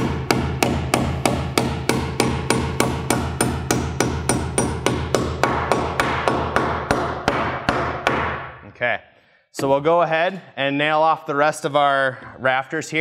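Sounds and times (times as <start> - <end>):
hammer driving nails: 0.0 - 8.6.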